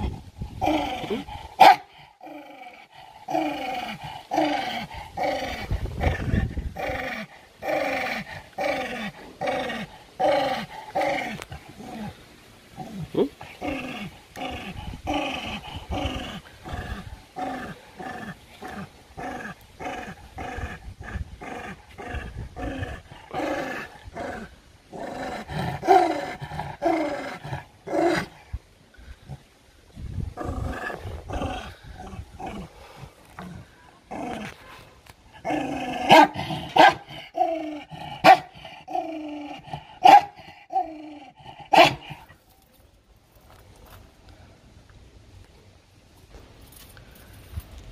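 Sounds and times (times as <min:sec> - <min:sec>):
dog growling: 0:00.0 - 0:12.2, 0:12.8 - 0:28.4, 0:30.3 - 0:42.3
dog barking: 0:01.6 - 0:01.9, 0:36.1 - 0:37.1, 0:38.2 - 0:38.5, 0:40.0 - 0:40.4, 0:41.7 - 0:42.1.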